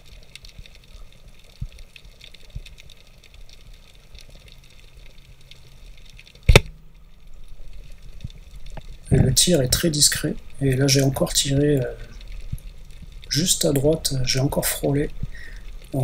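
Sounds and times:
low underwater hum: 0.0s - 16.0s
small crackling ticks: 0.0s - 16.0s
speargun firing underwater: 6.5s - 6.8s.

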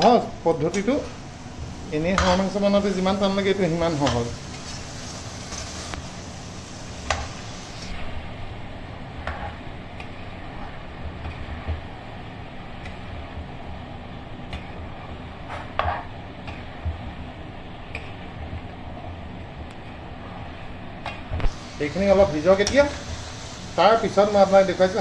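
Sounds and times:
frying hiss: 0.0s - 25.0s.

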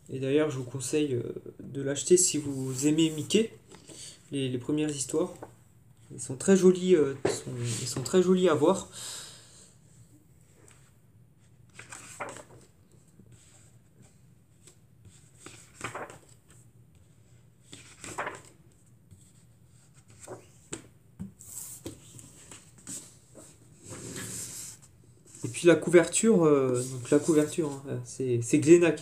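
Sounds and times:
paper pages rustling: 11.6s - 27.9s.

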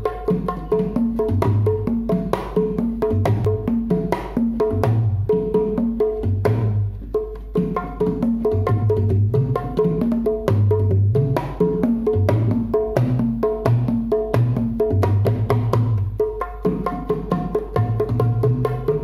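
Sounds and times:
hand drums playing fast rhythm: 0.0s - 19.0s.

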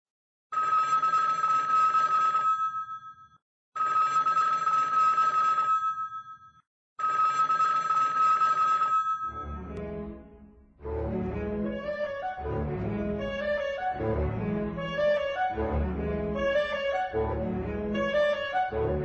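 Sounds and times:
old telephone bell ringing: 0.5s - 9.7s.

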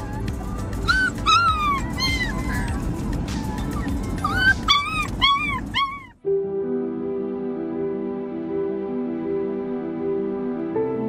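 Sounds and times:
low rumble: 0.0s - 6.2s
puppies whining and yipping: 0.0s - 6.2s
soft slow music: 0.0s - 11.0s.

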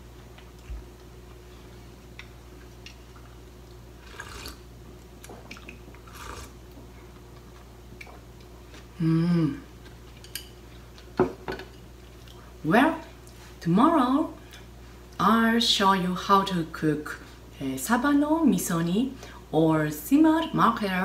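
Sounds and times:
soup slurping: 4.0s - 4.6s, 6.0s - 6.6s
person humming: 9.0s - 9.7s.

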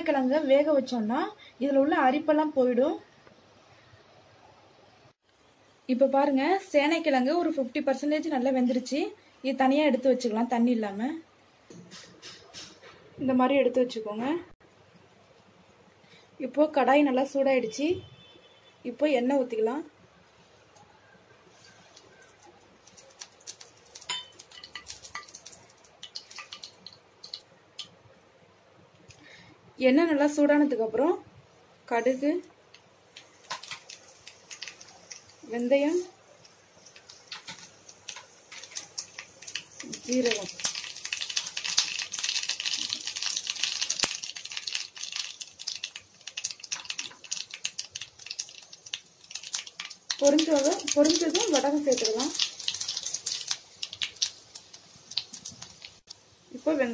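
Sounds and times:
hot oil crackling and popping: 20.7s - 28.2s, 31.9s - 56.9s.

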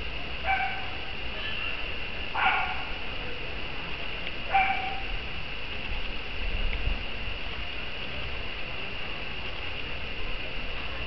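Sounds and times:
dog barking: 0.4s - 1.0s, 2.4s - 2.9s, 4.5s - 5.0s.

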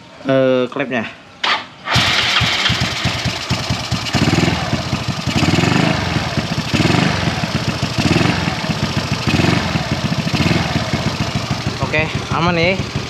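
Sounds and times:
scooter engine idling: 1.9s - 13.0s.

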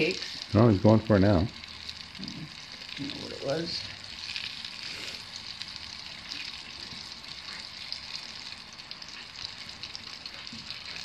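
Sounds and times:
dough frying in hot oil: 0.0s - 11.0s
faint oil crackles: 0.0s - 11.0s.

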